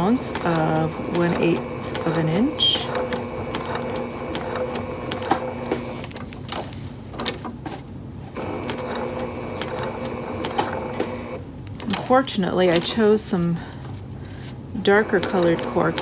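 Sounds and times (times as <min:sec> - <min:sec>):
sewing machine stitching: 0:00.0 - 0:06.1, 0:08.4 - 0:13.1, 0:14.8 - 0:16.0.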